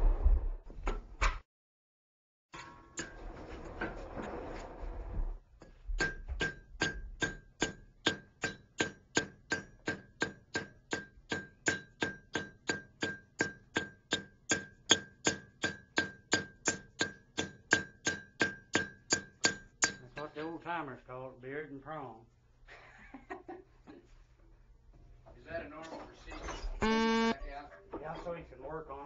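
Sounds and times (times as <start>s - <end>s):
hammer striking metal on anvil: 6.0s - 20.2s.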